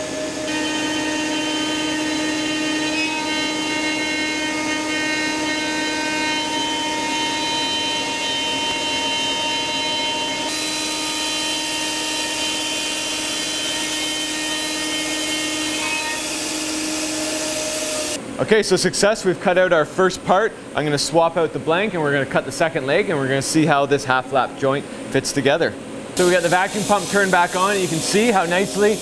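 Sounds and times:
router spindle whine: 0.0s - 18.2s.

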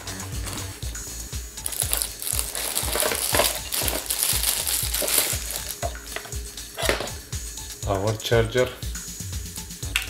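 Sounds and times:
plastic wrapping crinkling: 1.6s - 7.1s.

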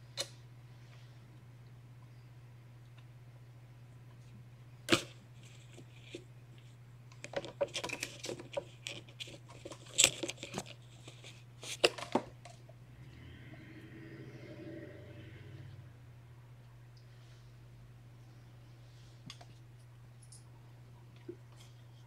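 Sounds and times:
steady low hum: 8.5s - 22.0s.

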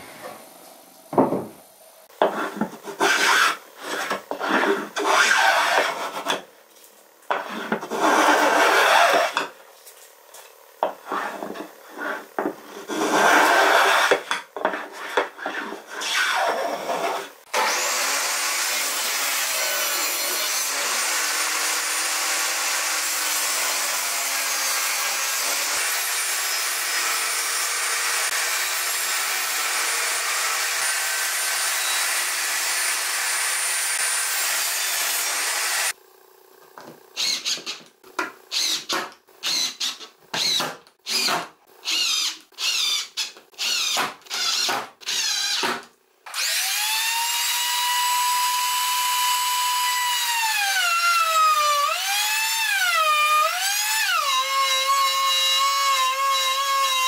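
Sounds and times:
table saw ripping board: 2.2s - 6.5s, 7.3s - 9.6s, 11.0s - 18.0s
cordless drill driving screws: 37.2s - 37.8s, 38.5s - 45.7s, 46.3s - 47.0s.

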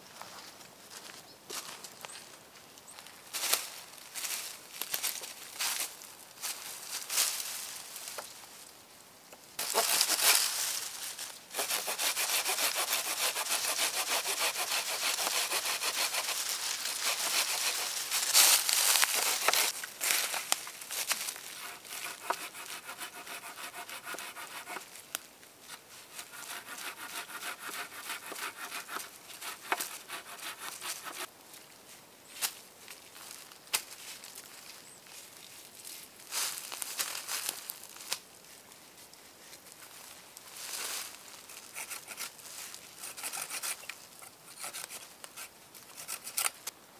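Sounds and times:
hand saw cutting wood: 9.6s - 10.5s, 11.5s - 18.4s, 19.0s - 19.8s, 21.6s - 24.9s, 26.1s - 31.3s, 41.5s - 42.3s, 43.0s - 43.9s, 44.5s - 46.6s.

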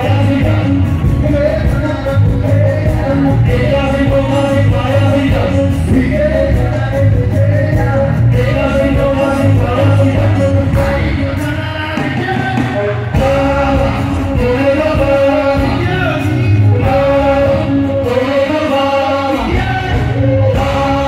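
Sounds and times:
live band music through pa: 0.0s - 21.0s
person singing: 0.0s - 21.0s.

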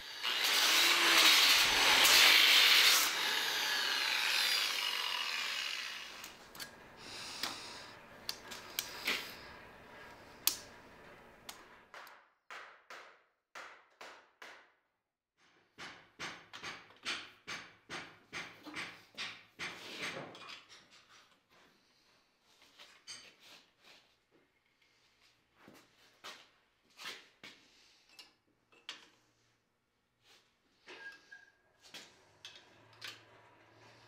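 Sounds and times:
angle grinder grinding wood: 0.0s - 10.2s.

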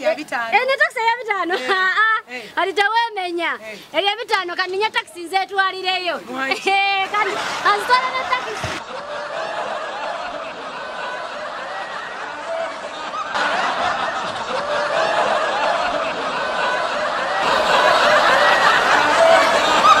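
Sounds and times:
laugh track: 1.2s - 2.3s, 6.5s - 20.0s.

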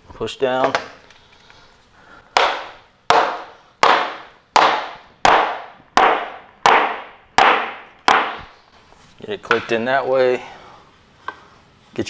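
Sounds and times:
rubber mallet knocking floor plank: 2.4s - 8.5s.

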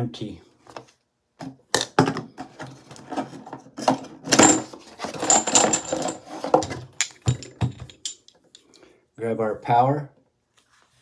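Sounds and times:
handling clicks and knocks: 4.3s - 8.7s.

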